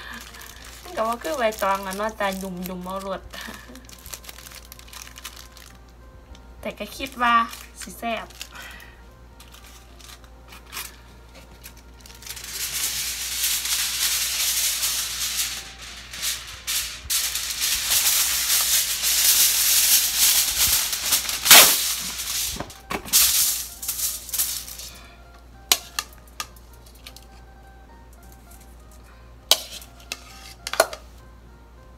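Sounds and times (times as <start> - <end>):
aluminium foil crinkling: 0.0 - 27.4, 28.2 - 30.9.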